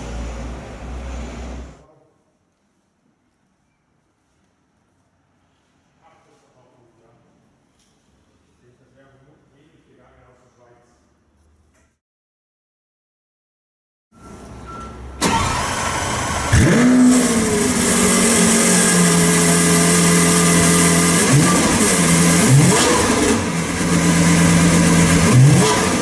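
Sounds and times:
car engine starting and idling: 14.3 - 26.0
starter motor engaging: 15.2 - 20.4
engine revving: 15.2 - 26.0.

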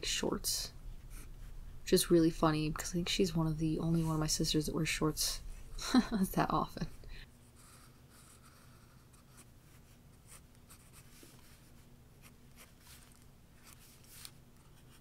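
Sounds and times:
low steady hum: 0.0 - 15.0
pencil scratching on paper: 6.7 - 15.0.

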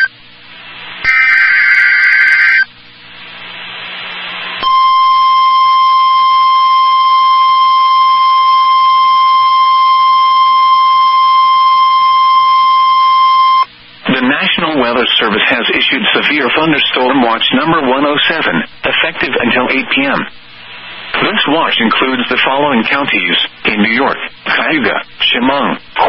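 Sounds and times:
faint static hiss: 0.0 - 26.0
steady high alarm tone: 1.1 - 2.6, 4.6 - 13.7.

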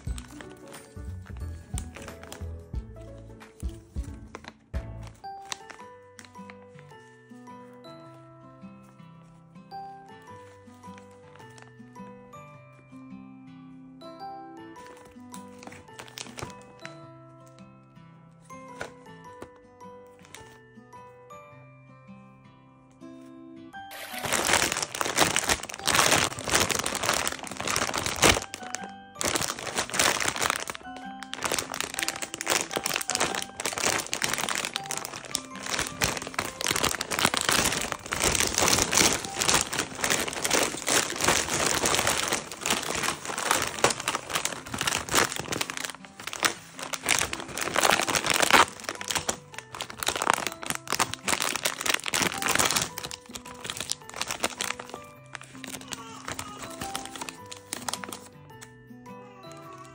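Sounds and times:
snack bag crinkling: 0.0 - 7.1, 14.8 - 16.9, 23.9 - 58.7
soft background music: 0.0 - 59.9.

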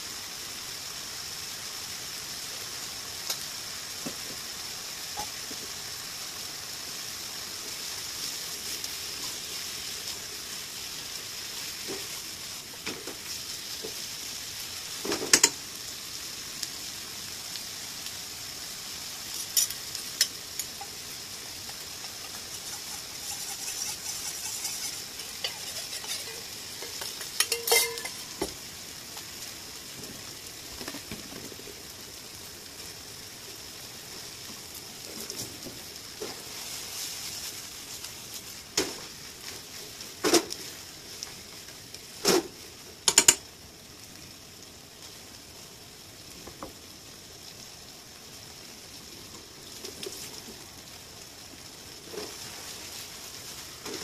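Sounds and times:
food sizzling in a frying pan: 0.0 - 54.0
utensils clinking on metal pan: 22.2 - 28.4.

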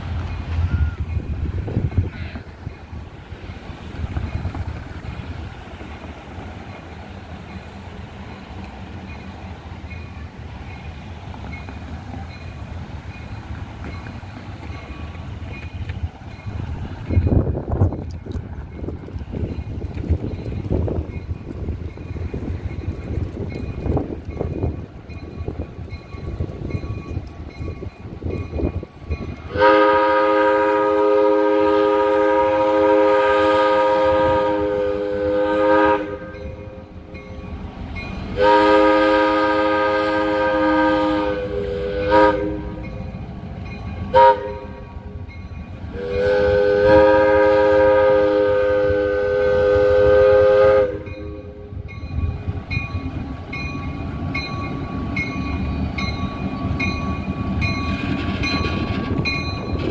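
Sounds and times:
locomotive air horn blasts: 29.5 - 36.8, 38.3 - 42.8, 44.1 - 45.0, 45.9 - 51.8.

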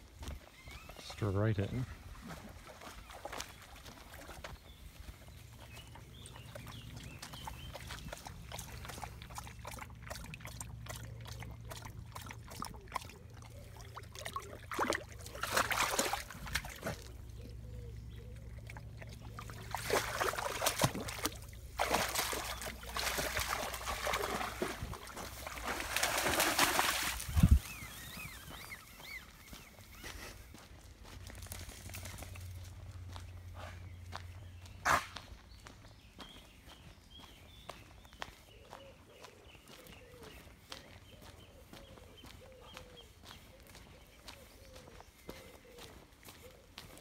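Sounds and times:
water sloshing and trickling: 2.1 - 4.5, 6.5 - 28.6
dog splashing in water: 7.3 - 17.2, 18.6 - 28.7.

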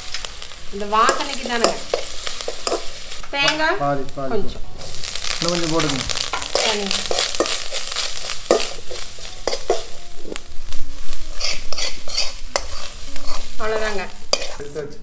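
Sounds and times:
fingers stirring mix in steel bowl: 6.0 - 10.0, 11.3 - 14.6.

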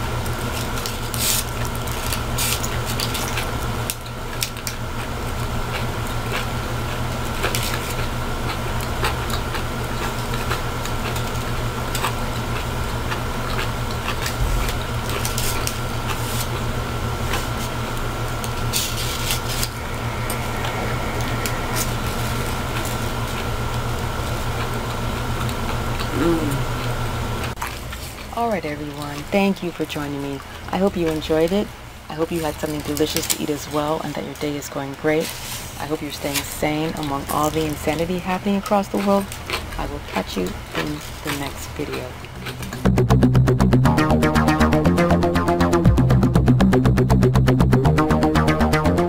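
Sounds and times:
mechanical hum: 0.0 - 49.0
aluminium foil crinkling: 0.2 - 5.2, 7.2 - 19.8, 27.6 - 42.8
chewing food: 0.2 - 34.5, 35.8 - 43.0.

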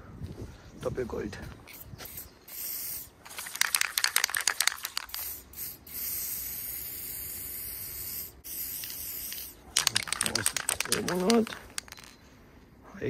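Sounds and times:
spray paint hissing: 1.7 - 12.1
spray can ball rattling: 1.7 - 12.2.

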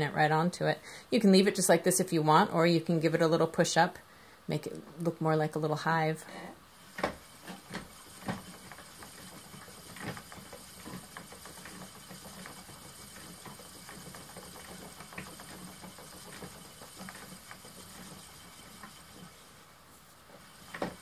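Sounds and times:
spinning wheel humming: 4.6 - 21.0.

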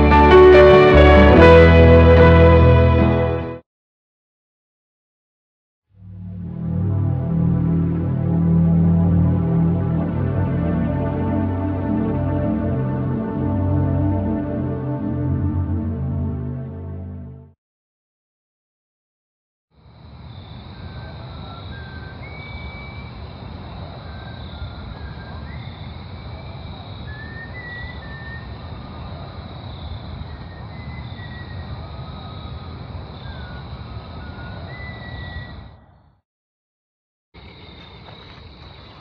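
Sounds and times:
low rumbling noise: 6.0 - 17.5.

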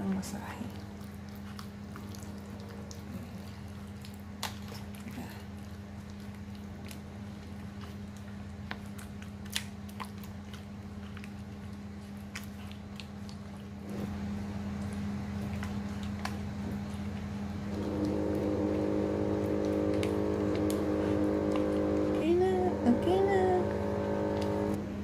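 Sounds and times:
hand kneading meat in marinade: 0.0 - 24.7
steady motor hum: 0.0 - 25.0
deeper drone: 17.6 - 25.0.

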